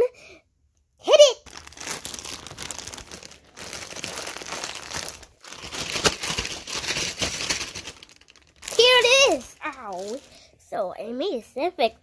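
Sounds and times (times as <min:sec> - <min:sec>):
plastic bag crinkling: 0:01.4 - 0:10.5.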